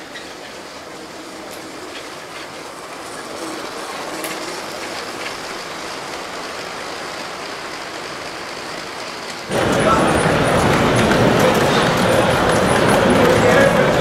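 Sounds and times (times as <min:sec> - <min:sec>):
toy trains rolling whir: 0:00.0 - 0:14.0.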